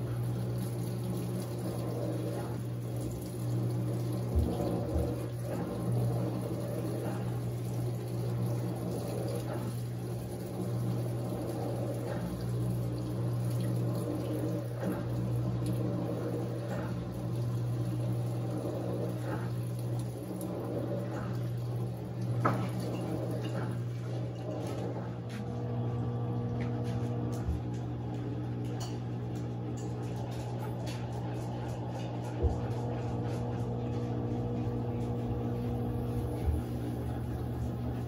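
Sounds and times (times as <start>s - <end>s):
water jets splashing on laundry: 0.0s - 25.4s, 33.2s - 38.0s
washing machine motor hum: 0.0s - 38.0s.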